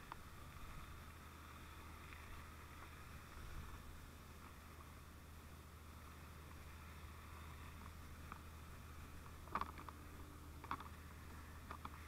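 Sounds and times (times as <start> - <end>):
light clicks: 11.6 - 12.0.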